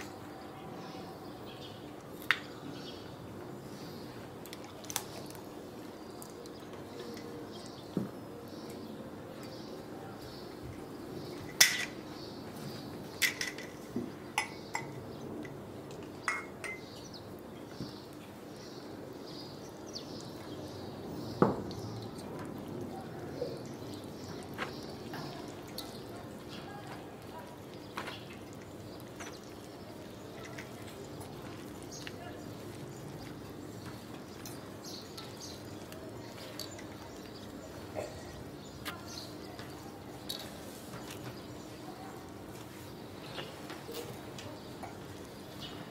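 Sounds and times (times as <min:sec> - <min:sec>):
utensil clinking steel bowl: 0:16.3 - 0:16.9.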